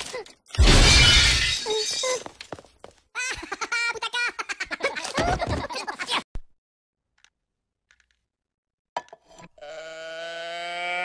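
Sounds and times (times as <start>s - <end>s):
glass shattering: 0.0s - 2.2s
high cartoon voices laughing: 3.2s - 6.2s.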